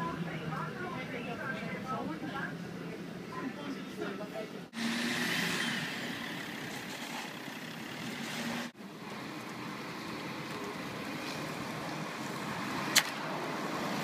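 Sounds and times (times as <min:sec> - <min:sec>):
road noise: 0:00.0 - 0:14.0
bus diesel engine running: 0:04.1 - 0:14.0.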